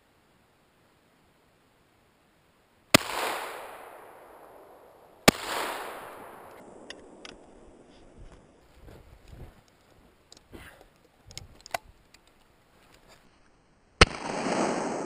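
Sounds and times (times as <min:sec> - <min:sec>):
shotgun shots with echo: 0:02.9 - 0:06.8, 0:14.0 - 0:15.0
faint clicks: 0:09.2 - 0:13.3.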